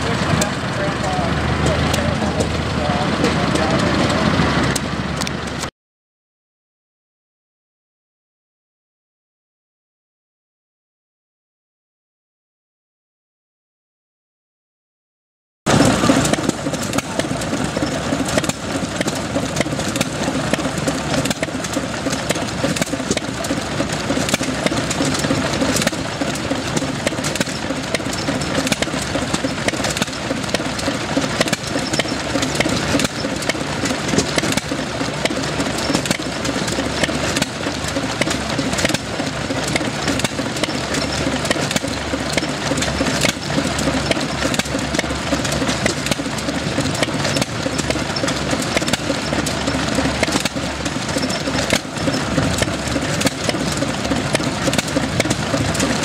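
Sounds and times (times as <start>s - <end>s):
gasoline engine running: 0.0s - 5.7s, 15.7s - 56.0s
sharp exhaust beats: 15.7s - 56.0s.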